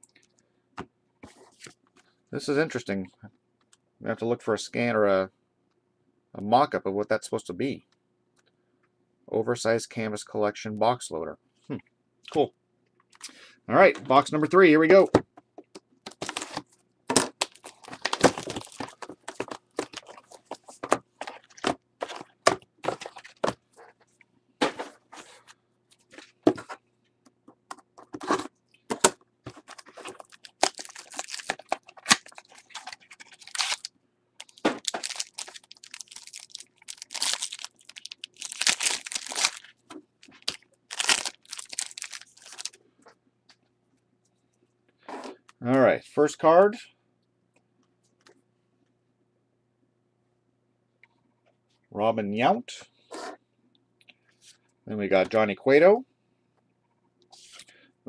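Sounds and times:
foil packs crinkling and tearing: 16.1 - 20.6, 29.6 - 42.8.

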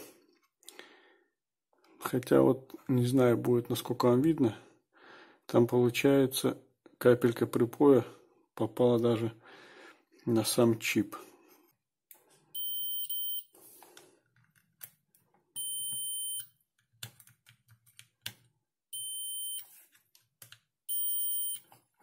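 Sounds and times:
multimeter buzzer beeping: 12.6 - 13.5, 15.6 - 16.6, 18.9 - 19.6, 20.9 - 21.6.

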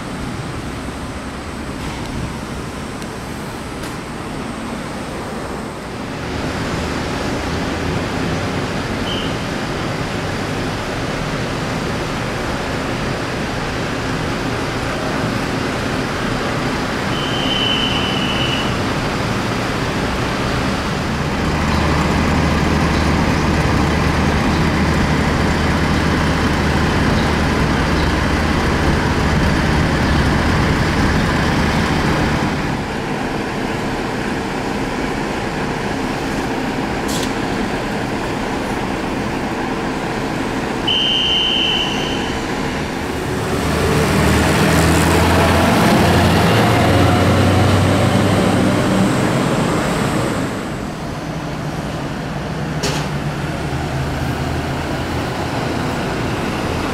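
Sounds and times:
road traffic noise: 0.0 - 56.9
truck engines running: 0.0 - 56.9
truck passing close by: 42.3 - 51.3.

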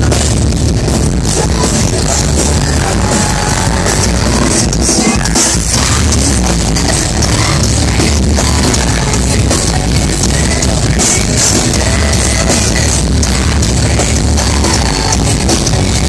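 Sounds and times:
drum kit: 0.0 - 16.0
electric guitars: 0.0 - 16.0.

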